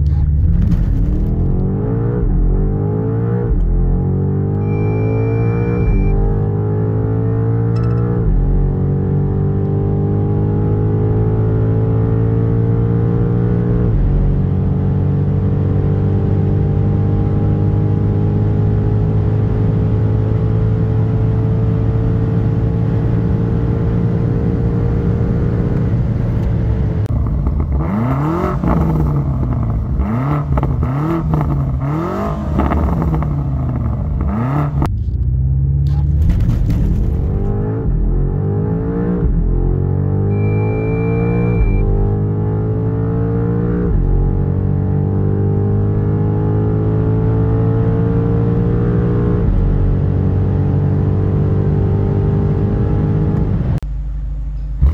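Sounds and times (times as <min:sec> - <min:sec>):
car engine at full throttle: 0:00.0 - 0:54.9
gear upshift: 0:04.5 - 0:06.5, 0:40.3 - 0:42.1.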